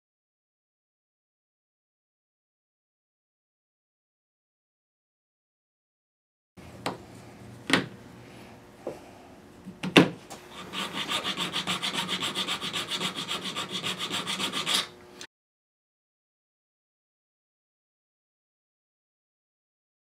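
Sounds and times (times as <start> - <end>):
razor blade scraping wood: 10.5 - 15.0.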